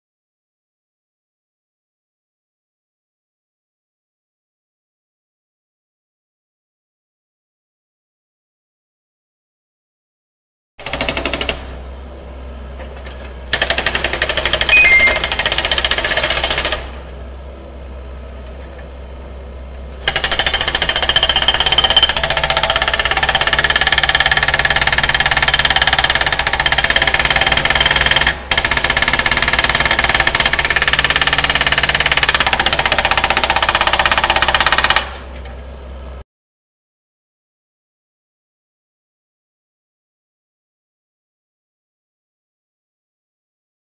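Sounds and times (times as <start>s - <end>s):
hydraulic breaker hammering rock: 20.0s - 35.2s.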